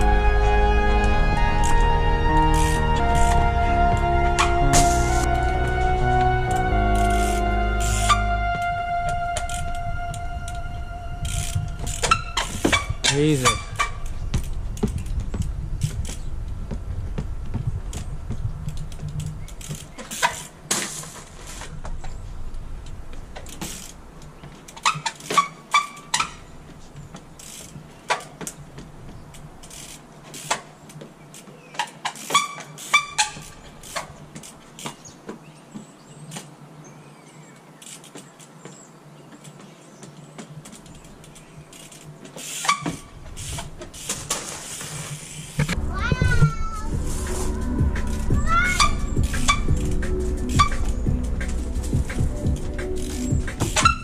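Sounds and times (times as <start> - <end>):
bike tyres knocking on wood: 12.0 - 22.2.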